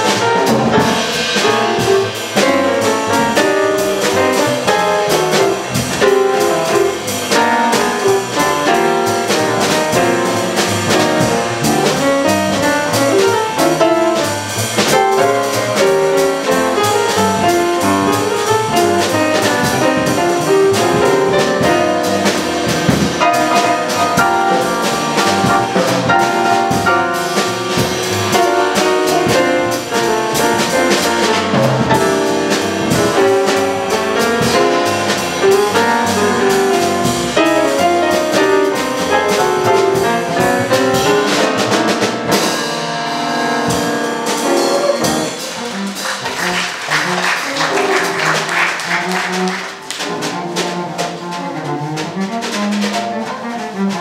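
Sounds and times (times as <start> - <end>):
drum kit: 0.0 - 54.0
grand piano: 0.0 - 54.0
upright double bass: 0.0 - 54.0
horn playing melody: 44.3 - 54.0.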